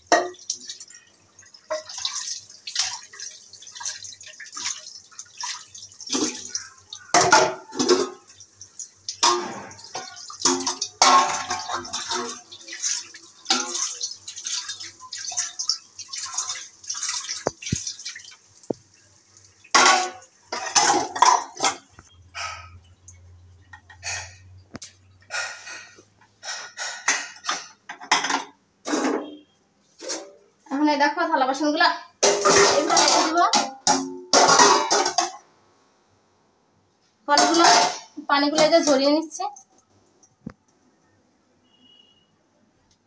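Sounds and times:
dishes clattering being stacked: 0:00.0 - 0:00.8, 0:06.1 - 0:08.3, 0:09.2 - 0:12.5, 0:19.7 - 0:22.8, 0:23.7 - 0:29.4, 0:32.2 - 0:35.4, 0:37.4 - 0:38.2
dishes clinking: 0:00.0 - 0:01.1, 0:01.7 - 0:03.1, 0:06.1 - 0:08.4, 0:09.2 - 0:14.2, 0:19.7 - 0:30.4, 0:32.2 - 0:35.4, 0:37.4 - 0:39.0
tap water running: 0:00.0 - 0:28.4, 0:37.3 - 0:40.6.

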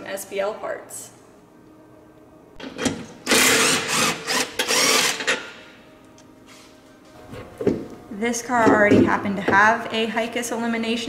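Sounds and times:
power tool rattling: 0:02.8 - 0:05.5.

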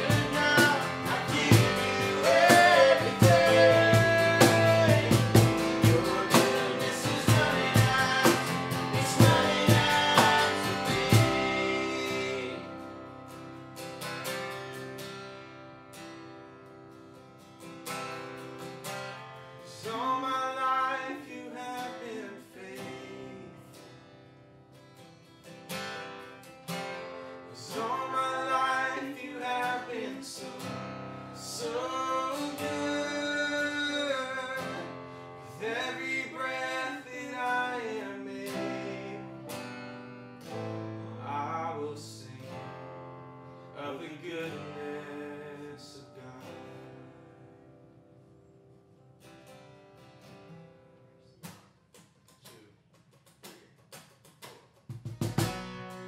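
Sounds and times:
person singing: 0:00.0 - 0:12.9, 0:27.6 - 0:30.7, 0:31.5 - 0:34.9, 0:35.5 - 0:39.4
strummed acoustic guitar: 0:00.0 - 0:56.0.

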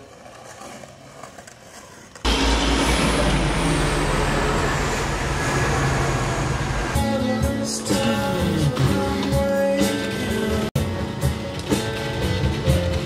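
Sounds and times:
high whine falling in pitch: 0:02.3 - 0:07.0
large vehicle engine rumbling: 0:02.3 - 0:07.0.

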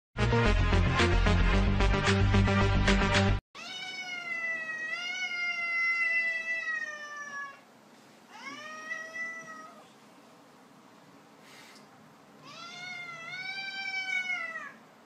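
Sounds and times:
cat meowing: 0:03.6 - 0:07.6, 0:08.3 - 0:09.8, 0:12.4 - 0:14.8.

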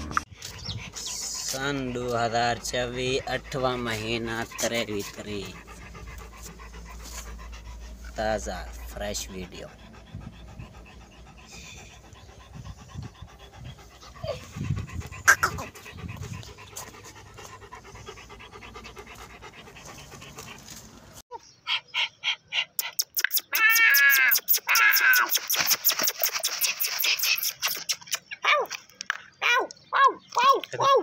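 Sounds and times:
dog panting: 0:00.3 - 0:21.2, 0:25.4 - 0:28.3.

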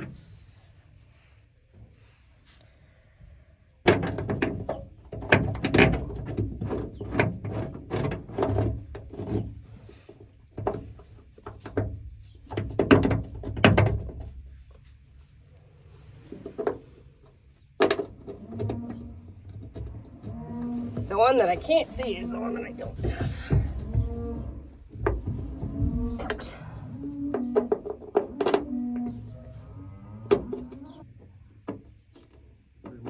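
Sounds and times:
metal knocking and clunking: 0:10.5 - 0:14.5, 0:17.8 - 0:29.3.

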